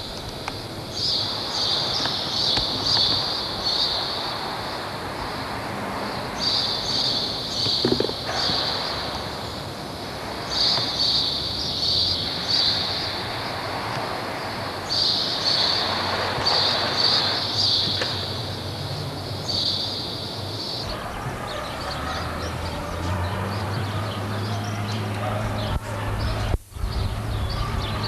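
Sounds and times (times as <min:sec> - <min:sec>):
faint hiss: 0:00.0 - 0:21.1, 0:22.5 - 0:28.0.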